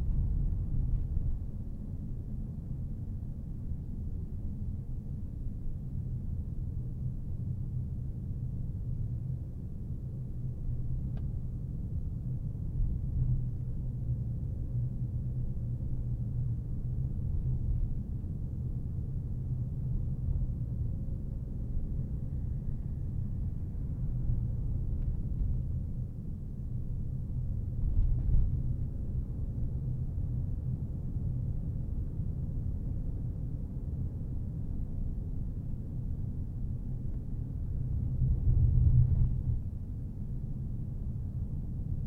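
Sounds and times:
car road and engine rumble: 0.0s - 42.0s.

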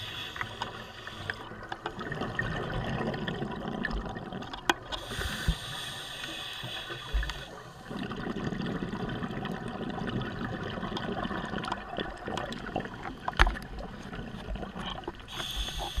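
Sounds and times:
gurgling exhaled bubbles: 2.0s - 5.8s, 7.2s - 16.0s
scuba regulator hiss: 5.0s - 7.6s, 15.3s - 16.0s.

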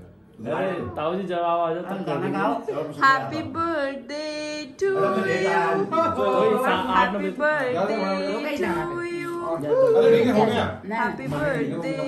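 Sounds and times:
people talking and singing: 3.0s - 12.0s.

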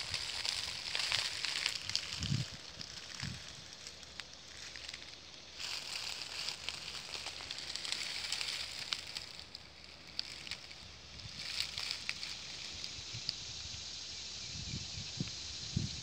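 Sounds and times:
faint crackles: 0.0s - 13.7s
cicadas droning: 0.0s - 16.0s.

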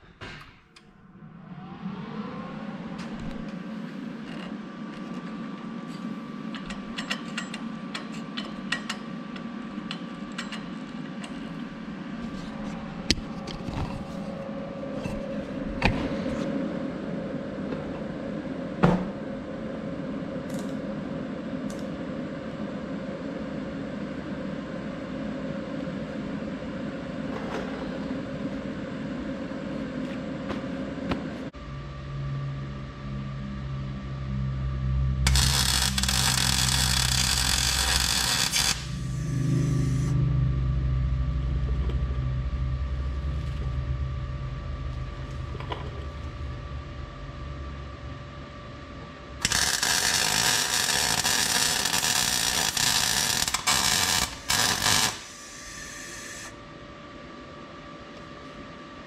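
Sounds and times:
steady low hum: 0.0s - 59.0s
welding arc crackling and hissing: 35.3s - 40.1s, 49.4s - 56.6s.

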